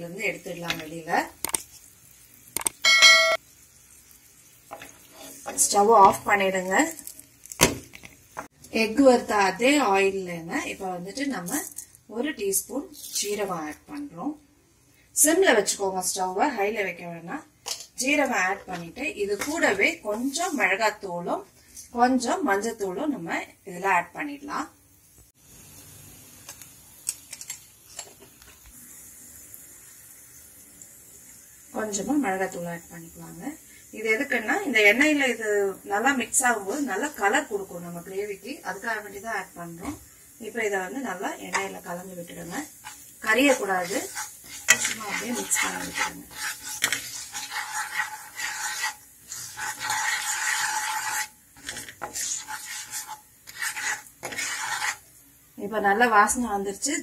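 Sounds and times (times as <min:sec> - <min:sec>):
seeds sizzling in hot oil: 0:00.0 - 0:57.0
wooden spatula scraping a pan: 0:04.7 - 0:06.4, 0:17.7 - 0:20.8, 0:41.5 - 0:55.1.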